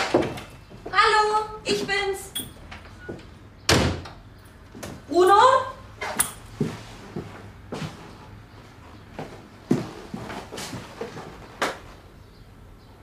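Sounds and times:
footsteps on wooden floor: 0:06.5 - 0:11.5.

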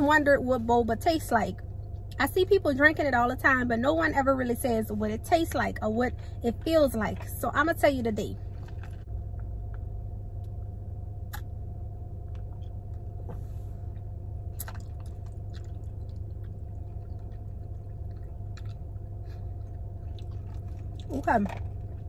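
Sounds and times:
steady low hum: 0:00.0 - 0:22.0
mouth clicks: 0:11.3 - 0:11.5
soft chewing: 0:13.9 - 0:22.0.

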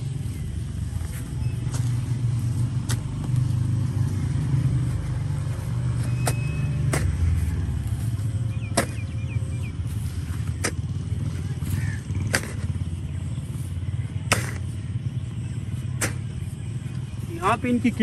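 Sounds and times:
steady low rumble: 0:00.0 - 0:18.0
hoe striking and dragging soil: 0:05.9 - 0:07.4, 0:08.6 - 0:09.2, 0:10.4 - 0:10.9, 0:12.2 - 0:12.7, 0:14.3 - 0:14.7, 0:16.0 - 0:16.3.

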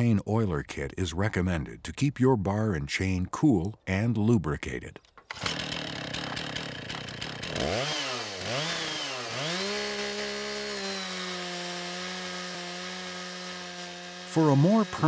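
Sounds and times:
chainsaw revving and cutting log: 0:05.3 - 0:15.0.

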